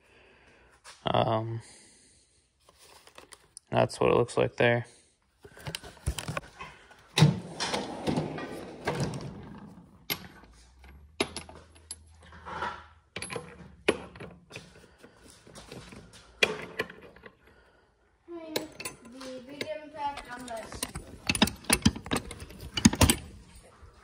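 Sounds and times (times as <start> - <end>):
metal sockets clinking: 10.0 - 14.7, 18.5 - 23.5.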